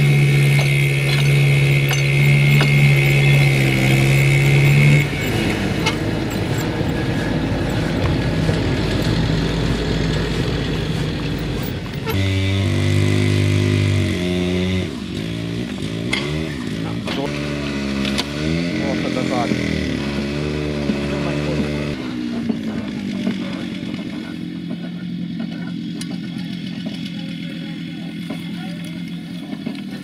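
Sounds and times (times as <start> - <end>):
engine humming: 0.0 - 30.0.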